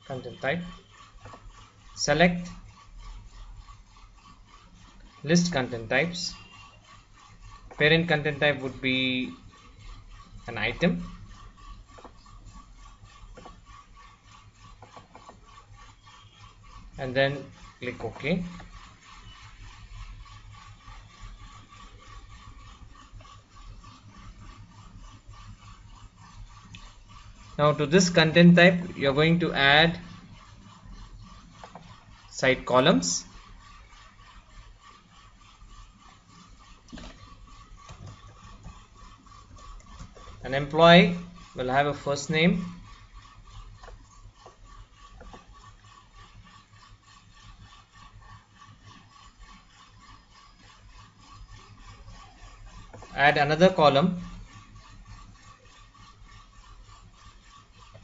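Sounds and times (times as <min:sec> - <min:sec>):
rapidly pulsing faint tone: 0:00.0 - 0:58.0
background hum and hiss: 0:07.6 - 0:12.2, 0:26.4 - 0:33.4.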